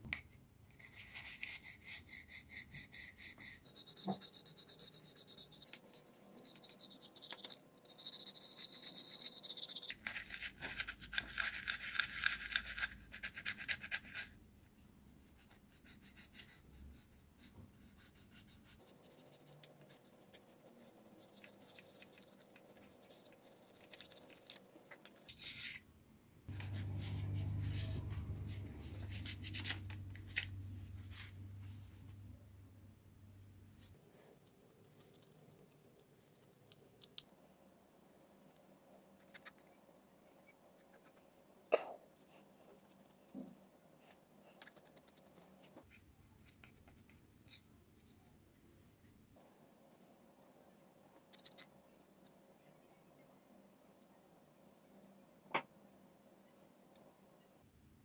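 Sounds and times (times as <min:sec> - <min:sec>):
toothbrush scrubbing: 0:00.8 - 0:14.3, 0:18.0 - 0:25.8
low rumbling noise: 0:26.5 - 0:33.0.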